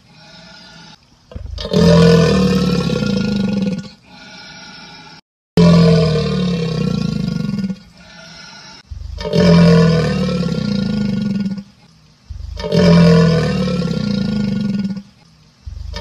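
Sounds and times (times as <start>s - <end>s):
animal roaring: 1.3s - 4.9s, 5.6s - 8.4s, 9.2s - 11.7s, 12.5s - 15.1s.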